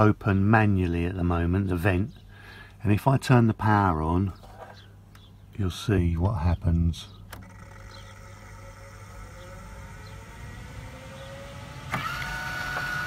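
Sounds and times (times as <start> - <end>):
vent motor clicking and whirring: 7.3 - 13.0.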